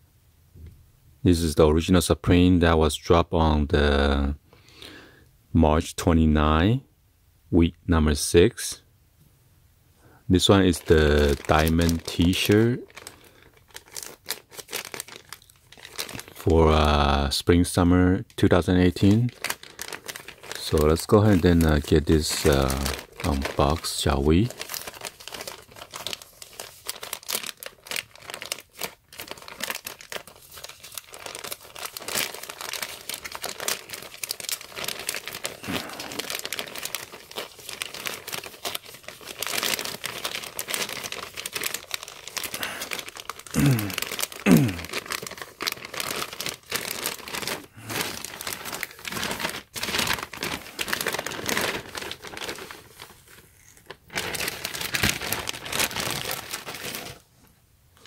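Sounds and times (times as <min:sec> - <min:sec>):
plastic mailer tearing and crinkling: 0:10.4 - 0:17.0, 0:18.5 - 0:57.3.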